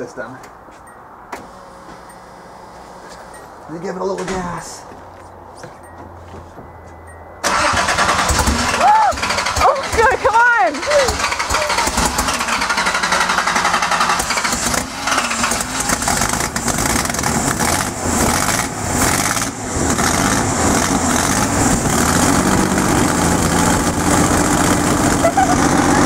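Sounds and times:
car engine idling roughly: 0:07.5 - 0:17.9.

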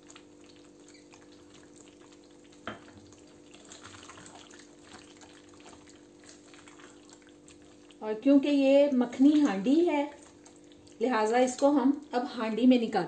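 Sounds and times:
spatula stirring: 0:00.0 - 0:08.0
sauce bubbling in a pan: 0:00.0 - 0:12.5.

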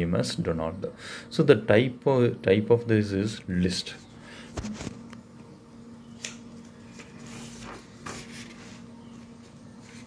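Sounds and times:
low steady hum: 0:00.0 - 0:10.0
paper rustling: 0:06.6 - 0:08.9.

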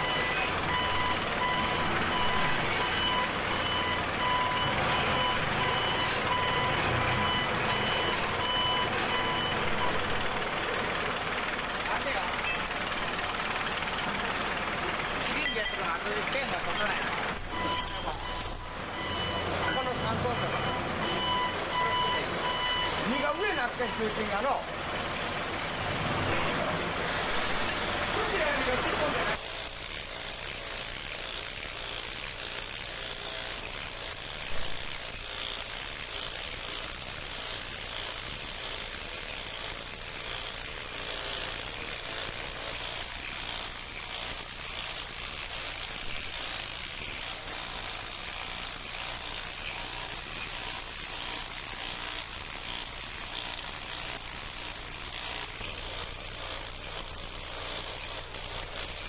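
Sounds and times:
power grinder cutting: 0:14.7 - 0:20.4, 0:26.6 - 0:59.0.

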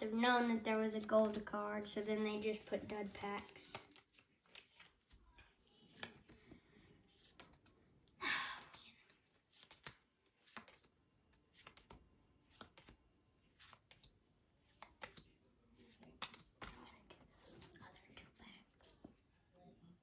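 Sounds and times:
trading cards clicking: 0:09.5 - 0:10.9, 0:11.5 - 0:13.0, 0:13.6 - 0:14.1, 0:14.7 - 0:15.3, 0:15.9 - 0:17.2.

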